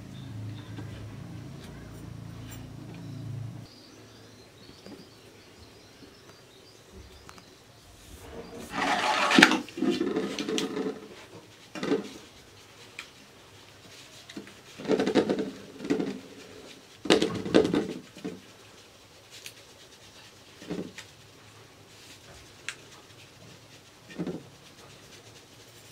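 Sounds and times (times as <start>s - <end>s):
flour sieve shushing rattle: 7.8s - 25.9s.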